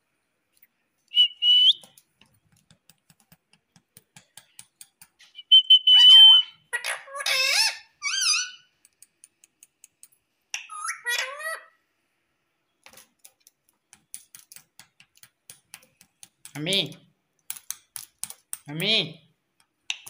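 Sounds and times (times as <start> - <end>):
parakeet whistling and squawking: 5.2 - 8.7, 10.6 - 11.7.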